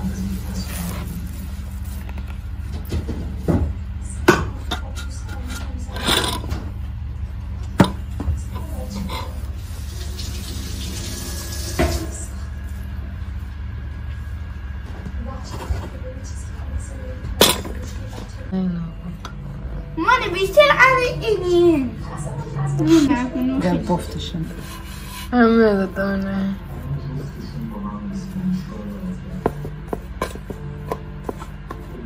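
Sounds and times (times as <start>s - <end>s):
steady low hum: 0.0s - 32.0s
kitchen utensils and dishes clinking: 4.3s - 6.8s, 17.3s - 18.3s.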